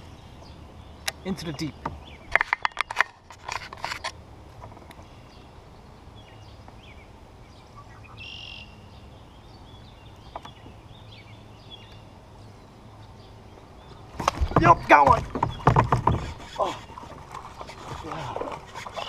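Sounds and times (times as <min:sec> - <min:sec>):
small birds chirping: 0:00.0 - 0:03.1, 0:03.9 - 0:19.0
low outdoor rumble: 0:00.0 - 0:19.0
knocks: 0:14.2 - 0:16.4.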